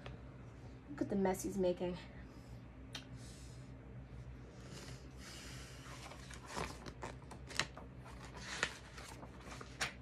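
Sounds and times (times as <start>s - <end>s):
low steady hum: 0.0s - 10.0s
book pages rustling: 5.8s - 10.0s.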